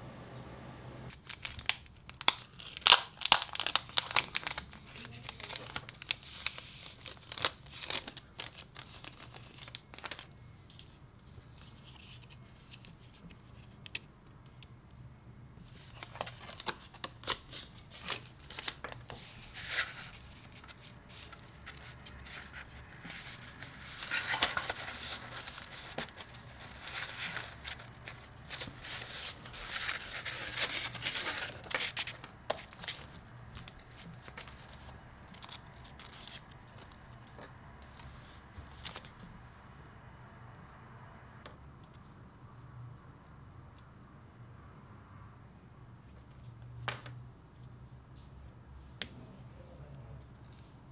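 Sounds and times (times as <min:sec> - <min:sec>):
paper rustling and crinkling: 0:01.1 - 0:14.0, 0:15.6 - 0:39.2.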